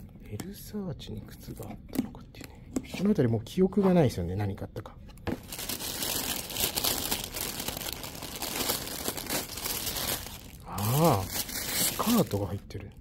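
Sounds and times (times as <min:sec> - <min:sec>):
packaging wrapping rustling: 0:05.3 - 0:12.6.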